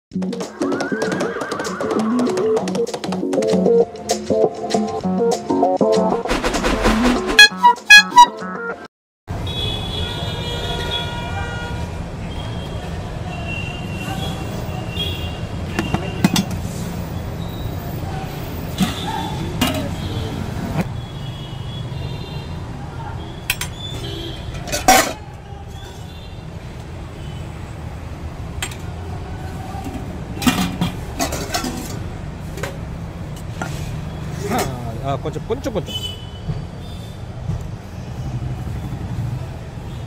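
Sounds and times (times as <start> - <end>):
steel utensils clinking on pots: 18.6 - 20.0, 23.5 - 25.2, 29.8 - 33.8
low traffic rumble: 22.4 - 40.0.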